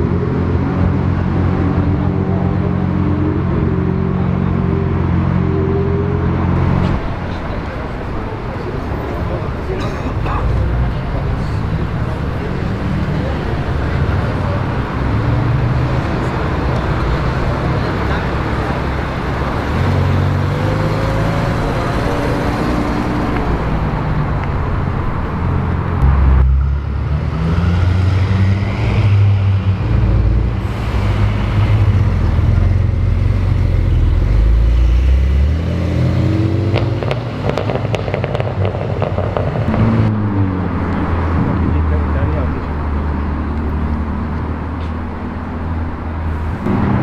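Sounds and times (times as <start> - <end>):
traffic: 0.0 - 47.0
sports car engine rumble: 28.4 - 47.0.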